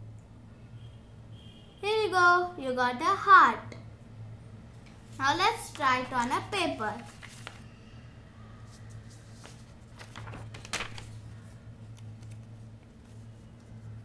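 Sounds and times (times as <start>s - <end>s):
paper rustling and folding: 5.0s - 7.7s, 8.6s - 14.0s
paper crackle: 5.1s - 7.7s, 8.7s - 13.8s.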